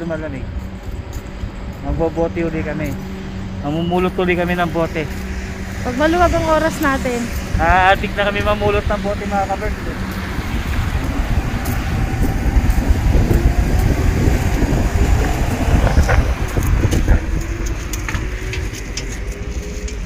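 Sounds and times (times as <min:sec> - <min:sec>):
road vehicle rumble: 0:00.0 - 0:20.0
wind noise on microphone: 0:04.9 - 0:20.0.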